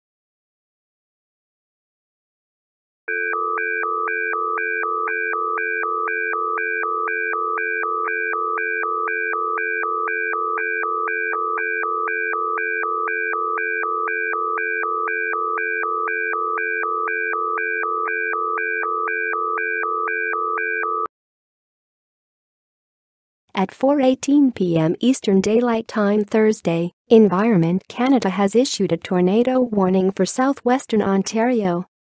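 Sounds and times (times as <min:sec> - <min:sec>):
emergency alert signal tones: 0:03.1 - 0:21.1.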